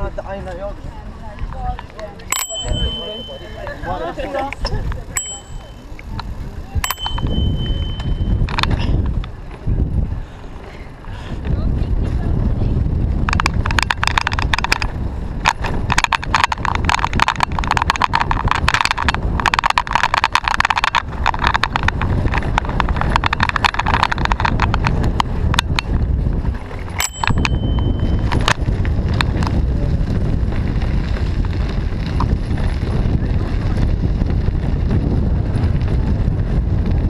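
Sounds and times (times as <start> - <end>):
bicycle rattling and clicking: 0.0 - 37.0
wind rumble on microphone: 0.0 - 37.0
high ringing tone: 2.3 - 4.3, 5.1 - 6.0, 6.8 - 8.5, 26.9 - 28.4.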